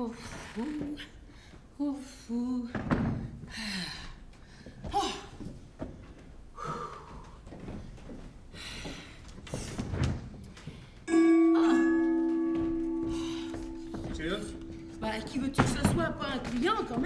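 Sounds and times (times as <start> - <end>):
two-tone doorbell chime: 11.1 - 15.9.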